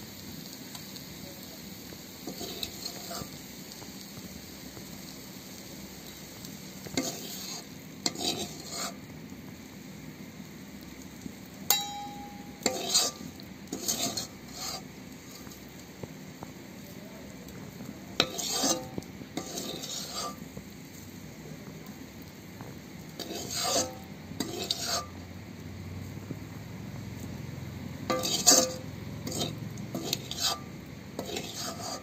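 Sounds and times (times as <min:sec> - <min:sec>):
low sizzle: 0:00.0 - 0:32.0
metal spatula scraping pan: 0:02.3 - 0:03.4, 0:06.9 - 0:09.0, 0:11.7 - 0:15.5, 0:18.2 - 0:20.4, 0:23.2 - 0:25.2, 0:28.1 - 0:32.0
sharp metallic clink: 0:11.7 - 0:13.1.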